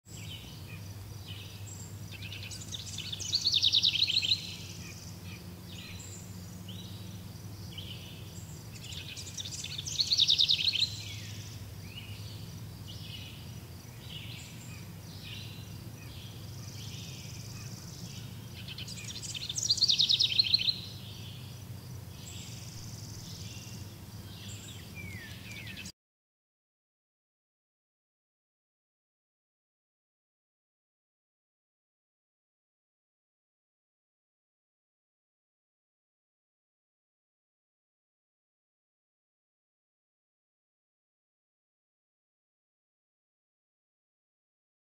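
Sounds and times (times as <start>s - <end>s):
steady low hum: 0.1s - 25.9s.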